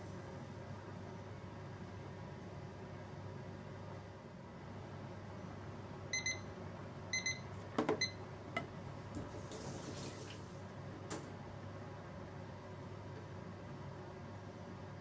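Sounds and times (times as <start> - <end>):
short electronic beeps: 6.2 - 6.5, 7.2 - 7.4.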